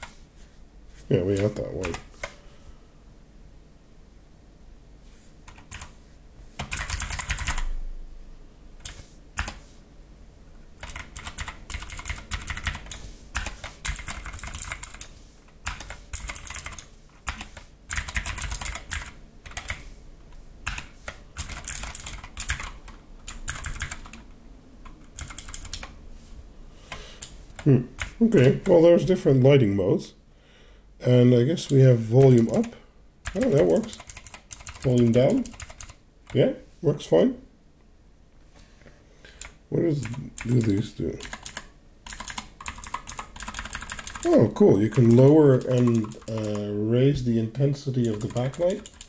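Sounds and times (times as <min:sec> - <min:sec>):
mechanical keyboard typing: 0:01.2 - 0:02.4, 0:05.5 - 0:05.9, 0:06.6 - 0:07.7, 0:08.8 - 0:09.6, 0:10.8 - 0:19.9, 0:20.6 - 0:24.2, 0:24.8 - 0:26.0, 0:27.2 - 0:28.8, 0:31.7 - 0:36.4, 0:39.4 - 0:46.7, 0:48.0 - 0:49.0.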